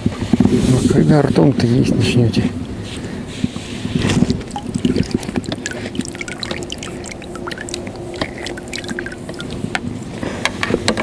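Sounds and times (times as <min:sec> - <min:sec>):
water splashing: 0:04.0 - 0:09.7
water trickling and dripping: 0:04.2 - 0:09.8.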